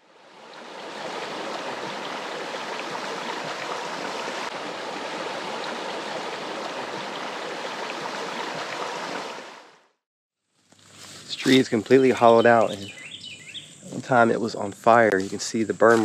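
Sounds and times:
running water: 0.0s - 9.7s.

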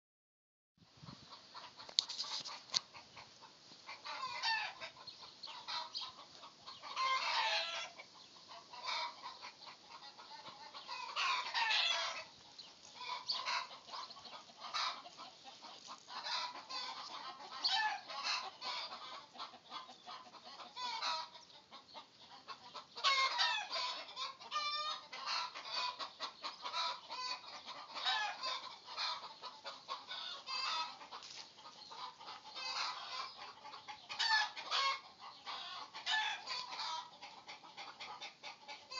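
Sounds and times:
chickens clucking: 1.0s - 38.9s.

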